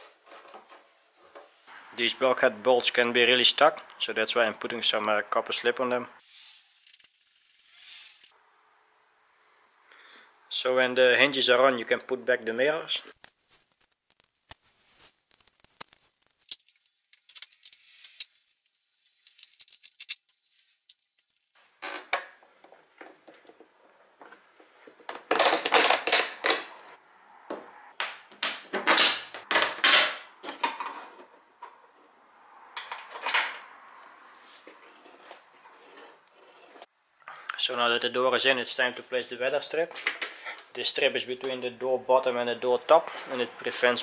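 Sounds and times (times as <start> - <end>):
metal clinks and scrapes: 15.0 - 18.5, 19.1 - 21.0.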